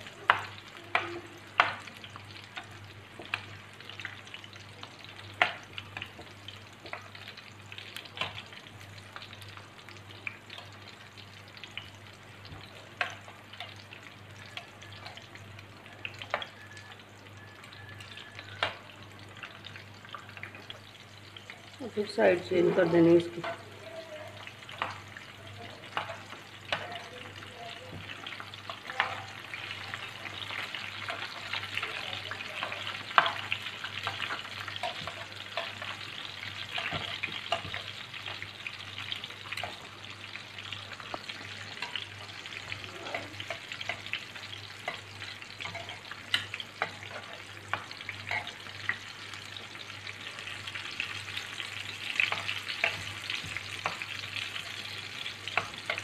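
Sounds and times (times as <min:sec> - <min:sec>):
food sizzling in hot oil: 0:00.0 - 0:56.0.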